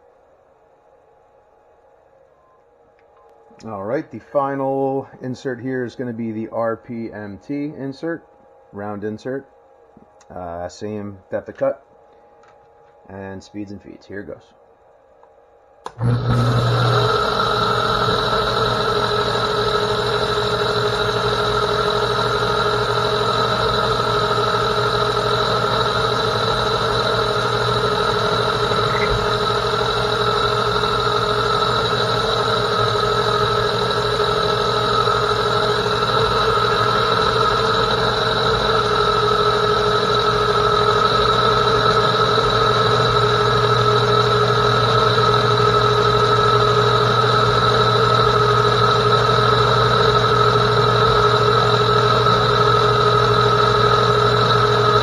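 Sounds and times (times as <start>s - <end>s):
metal lathe running: 15.9s - 55.0s.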